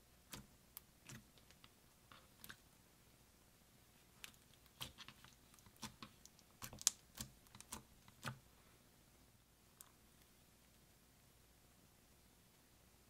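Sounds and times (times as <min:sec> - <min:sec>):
slime clicking and popping: 0:04.3 - 0:08.4.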